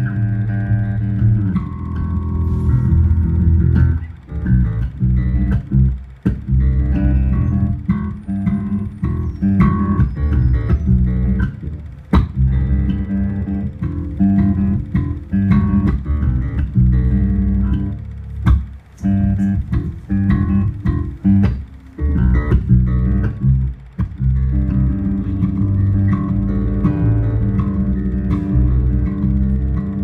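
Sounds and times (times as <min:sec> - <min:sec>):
electric bass guitar plucked: 0:00.0 - 0:30.0.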